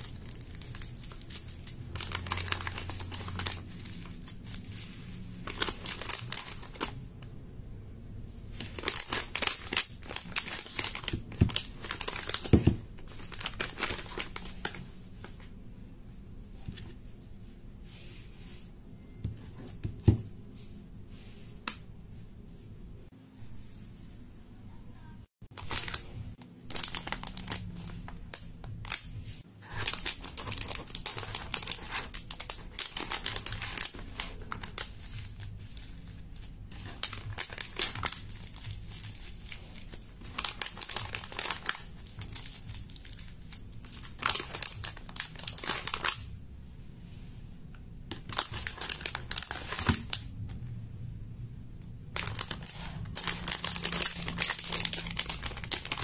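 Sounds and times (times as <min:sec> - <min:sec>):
plastic packaging crinkling: 0:00.0 - 0:07.0, 0:08.5 - 0:15.4, 0:25.5 - 0:46.3, 0:48.1 - 0:50.4, 0:52.2 - 0:56.0.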